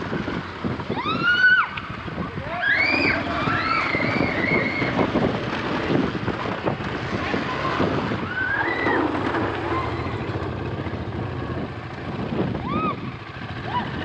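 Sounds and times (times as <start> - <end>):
wind buffeting microphone: 0.0 - 14.0
children shouting and whooping: 0.9 - 5.3, 7.4 - 10.4, 12.5 - 14.0
motorcycle engine running: 1.8 - 14.0.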